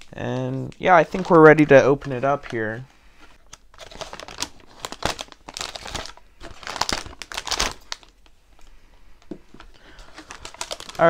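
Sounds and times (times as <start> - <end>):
plastic bag crinkling: 0.0 - 8.7, 9.5 - 11.0.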